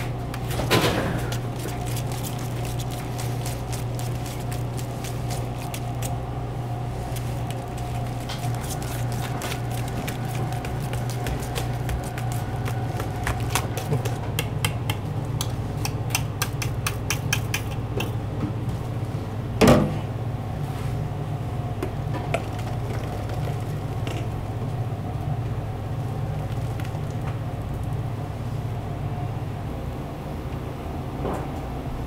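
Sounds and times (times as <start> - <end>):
steady low hum: 0.0 - 32.0
thick sauce stirred in metal bowl: 1.2 - 6.2, 7.0 - 15.0, 16.1 - 18.1.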